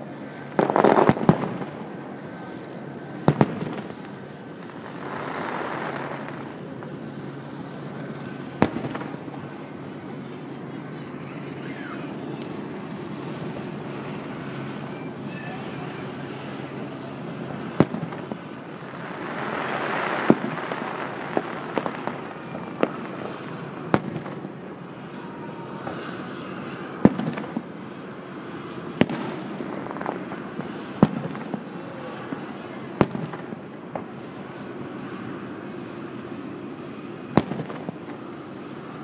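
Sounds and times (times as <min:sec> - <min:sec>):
outdoor background noise: 0:00.0 - 0:39.0
firework shells bursting: 0:29.0 - 0:31.7.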